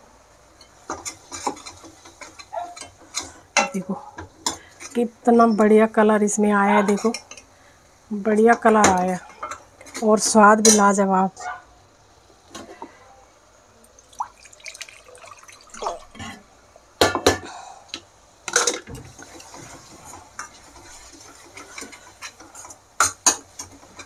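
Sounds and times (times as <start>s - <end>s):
steel spoon scraping a pan: 19.2s - 24.0s.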